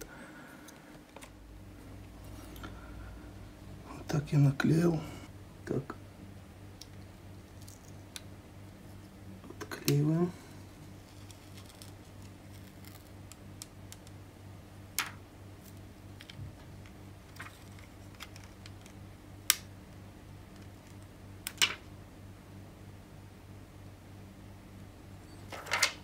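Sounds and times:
steady low hum: 0:00.0 - 0:26.0
plastic film clicks and crackles: 0:11.1 - 0:14.2, 0:17.3 - 0:19.7.

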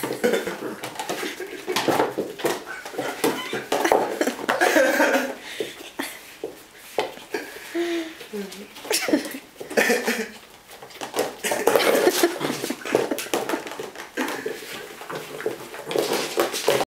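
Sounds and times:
plastic box clattering and scraping: 0:10.8 - 0:16.9.

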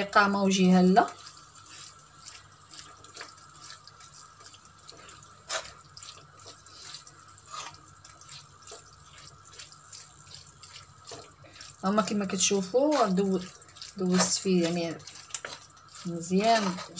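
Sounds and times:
wooden spoon stirring mussels: 0:00.0 - 0:16.9.

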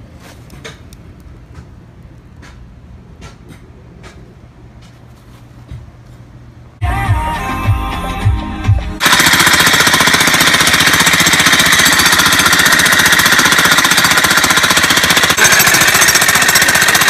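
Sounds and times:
jackhammer pounding into soil: 0:09.0 - 0:17.0.

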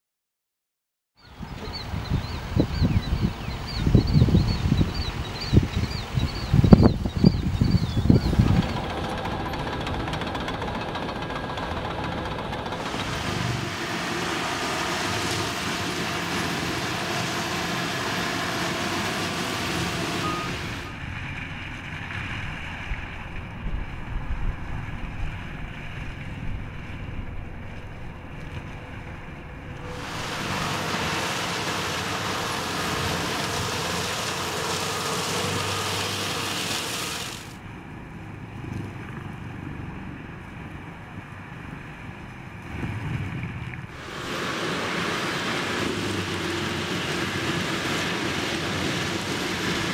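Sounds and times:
mulcher shredding brush: 0:08.0 - 0:23.8, 0:27.8 - 0:37.6, 0:43.2 - 0:49.9.

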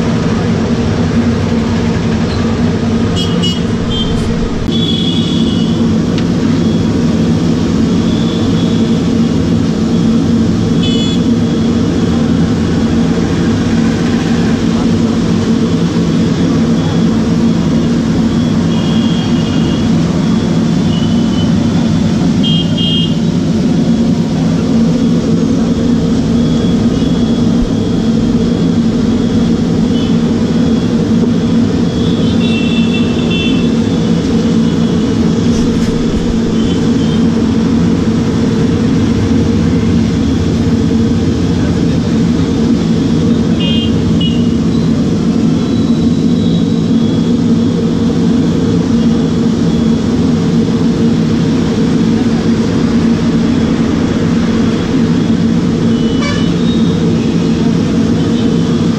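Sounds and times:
street noise hum: 0:00.0 - 0:58.9
vehicle horns tooting: 0:03.1 - 0:05.9, 0:10.7 - 0:11.6, 0:18.6 - 0:20.0, 0:22.4 - 0:23.3, 0:32.0 - 0:34.0, 0:43.4 - 0:44.6, 0:55.9 - 0:56.9.

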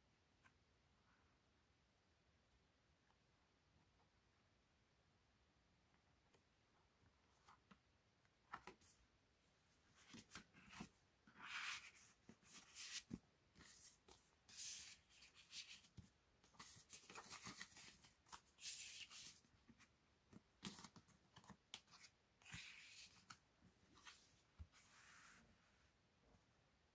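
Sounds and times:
paper and card rustling: 0:09.9 - 0:25.1.

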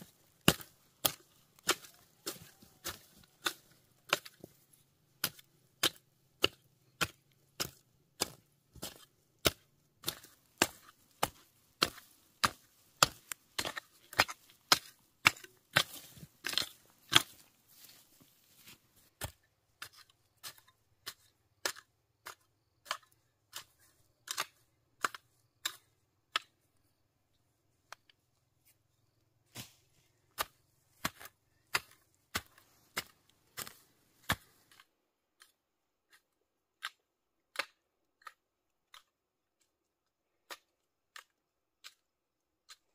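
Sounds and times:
hand hoe chopping dry soil: 0:00.0 - 0:27.0, 0:29.0 - 0:42.9.

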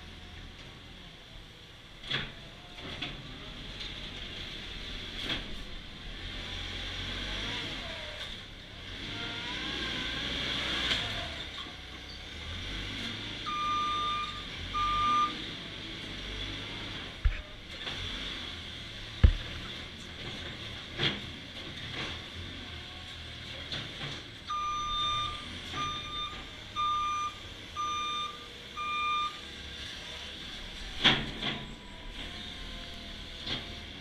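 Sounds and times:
diesel engine running: 0:03.2 - 0:34.0
reversing alarm: 0:13.5 - 0:15.4, 0:24.5 - 0:29.5
sharp knocks: 0:19.2 - 0:19.6.

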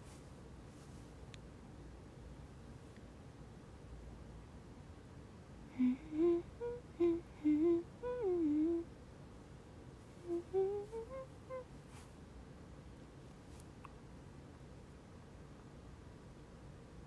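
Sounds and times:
woman humming: 0:05.7 - 0:08.9, 0:10.2 - 0:11.7.

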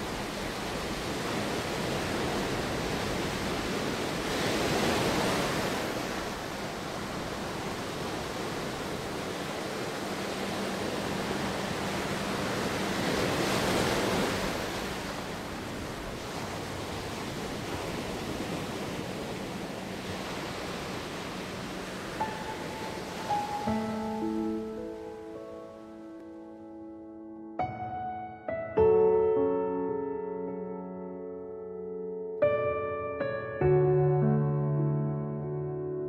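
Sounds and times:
ocean surf: 0:00.0 - 0:26.2
music notes: 0:22.1 - 0:36.0.

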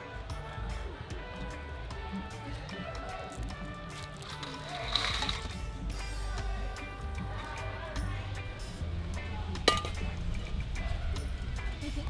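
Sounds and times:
background music: 0:00.0 - 0:12.0
metal wok clanking on grate: 0:09.7 - 0:10.1.

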